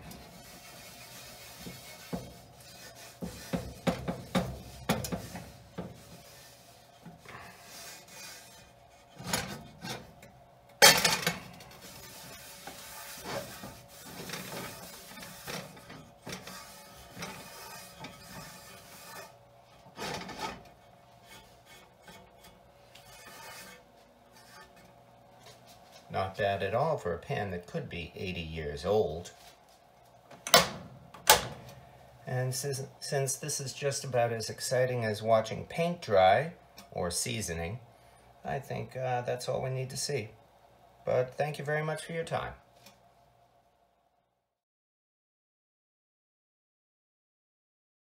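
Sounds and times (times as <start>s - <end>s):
rag wiping cast iron pan: 0.0s - 10.0s, 11.6s - 26.0s
pan knocking: 1.6s - 6.0s.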